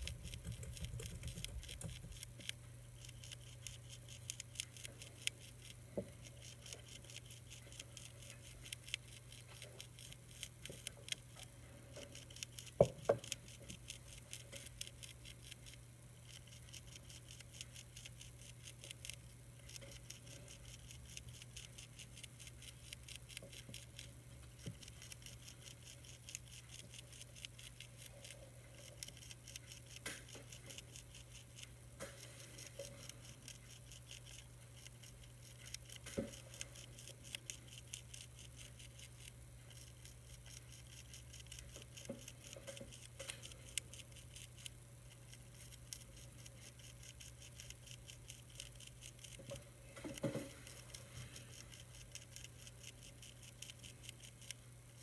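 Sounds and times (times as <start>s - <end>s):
caterpillar chewing leaf: 0.0s - 55.0s
steady low hum: 0.0s - 55.0s.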